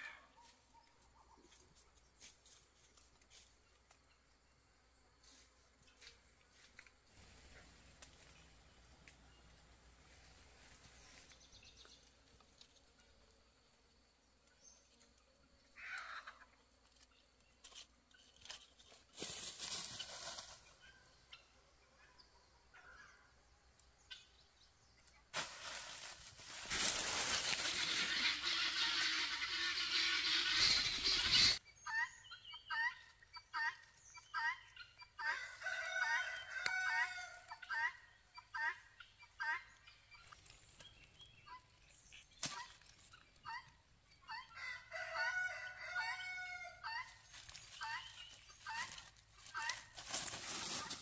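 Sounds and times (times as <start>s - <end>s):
footsteps crunching dry leaves: 19.1s - 20.7s, 25.4s - 28.6s, 47.2s - 51.0s
short pitched calls: 27.6s - 31.6s.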